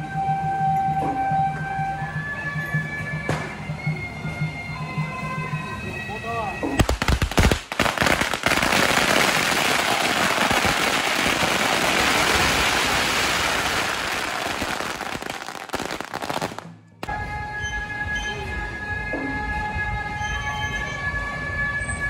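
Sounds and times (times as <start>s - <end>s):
firecrackers crackling and banging: 6.7s - 17.2s.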